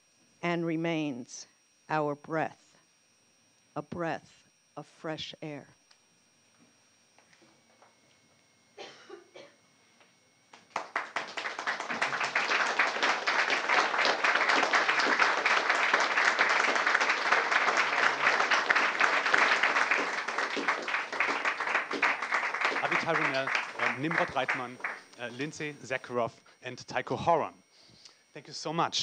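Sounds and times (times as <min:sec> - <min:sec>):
audience applauding: 0:10.5 - 0:25.8.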